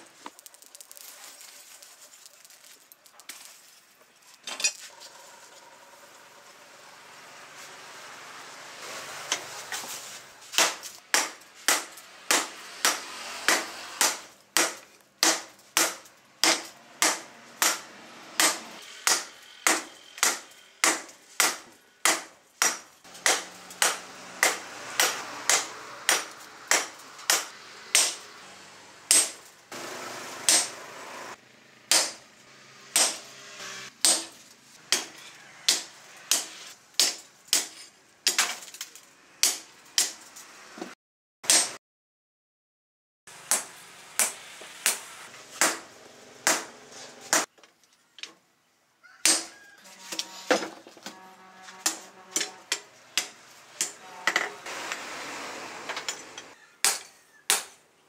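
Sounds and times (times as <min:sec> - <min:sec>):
hammer striking metal on anvil: 0:10.6 - 0:28.2, 0:29.1 - 0:29.4, 0:30.5 - 0:30.8, 0:31.9 - 0:32.2.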